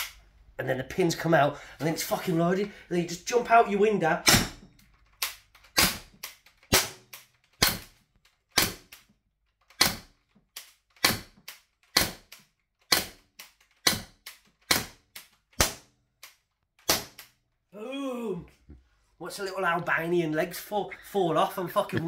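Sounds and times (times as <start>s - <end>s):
air gun shots: 4.2s - 4.7s, 5.8s - 7.9s, 15.6s - 15.9s, 16.9s - 17.3s.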